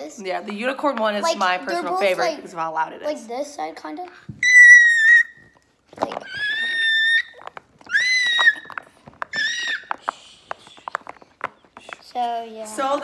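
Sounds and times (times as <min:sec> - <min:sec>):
child squealing: 0:04.4 - 0:05.5, 0:06.2 - 0:10.0
fidget toy popping: 0:04.4 - 0:12.3.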